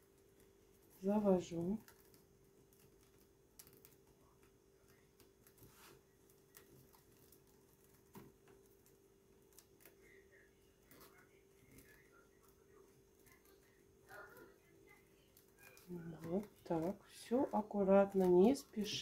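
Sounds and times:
paper tubes clicking and rustling: 0.0s - 10.2s, 15.2s - 19.0s.

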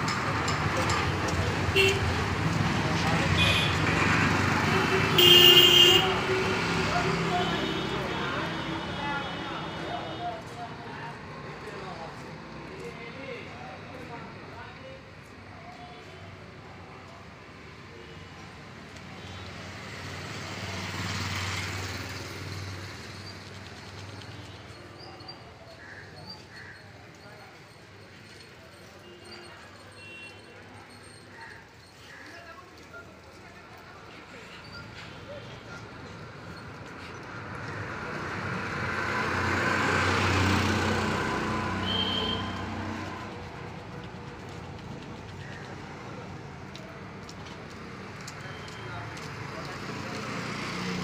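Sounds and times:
vehicle passing by: 36.9s - 46.1s.

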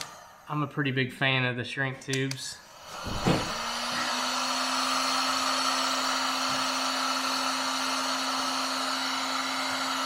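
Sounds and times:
heat gun fan whirring: 0.0s - 0.6s, 2.0s - 10.0s.

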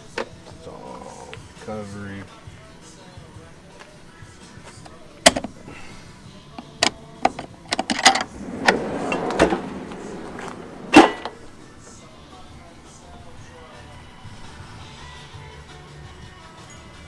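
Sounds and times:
drawer rolling on metal slides: 7.7s - 12.0s.

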